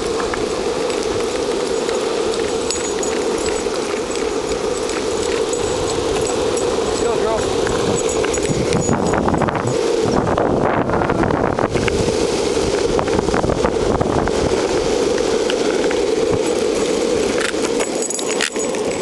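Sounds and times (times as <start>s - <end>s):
longboard wheels rolling on pavement: 0.0s - 19.0s
small clicks and rattles: 15.5s - 19.0s.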